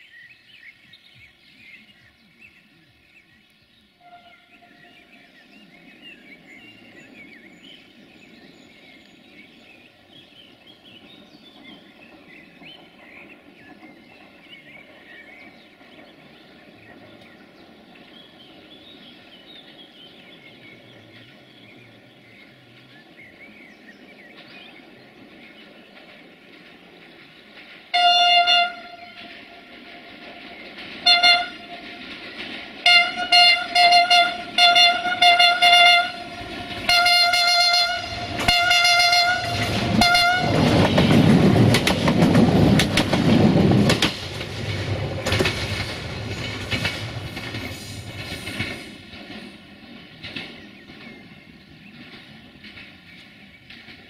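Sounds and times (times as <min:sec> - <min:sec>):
train rumble and wheel clatter: 0:00.0 - 0:54.0
train horn blasts: 0:04.0 - 0:04.9, 0:27.9 - 0:29.3, 0:31.0 - 0:31.8, 0:32.8 - 0:40.8.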